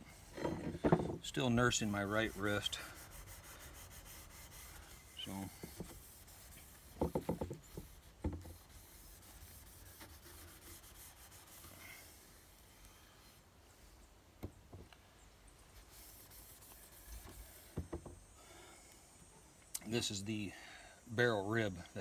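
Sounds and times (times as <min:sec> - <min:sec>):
steel wool rubbing metal barrel: 0:00.0 - 0:12.6.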